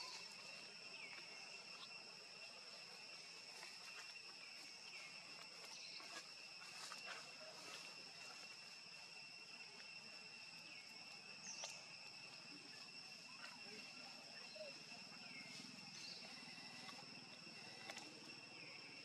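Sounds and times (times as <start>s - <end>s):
insect chorus whine: 0.0s - 19.0s
faint ticks: 16.8s - 18.2s.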